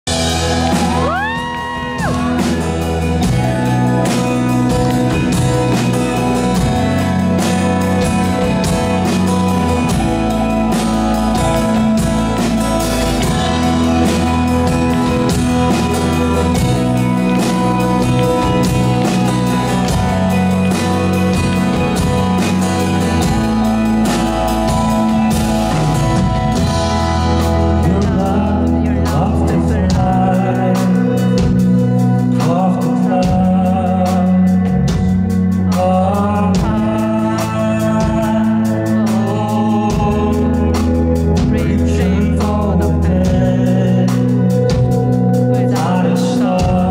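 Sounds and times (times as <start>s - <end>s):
drum kit beat: 0.0s - 46.9s
acoustic guitar: 0.1s - 46.9s
man singing: 0.1s - 46.9s.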